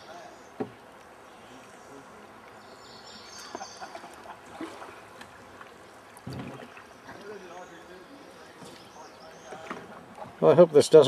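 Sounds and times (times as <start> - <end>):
water lapping and trickling: 0.5 - 11.0
light knocks on canoe: 6.2 - 7.3, 9.5 - 10.4.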